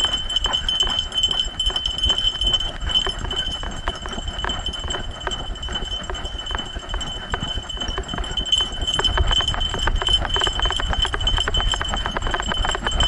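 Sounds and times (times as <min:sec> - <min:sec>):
dog running on dirt trail: 0:00.0 - 0:13.0
gear rattling: 0:00.0 - 0:13.0.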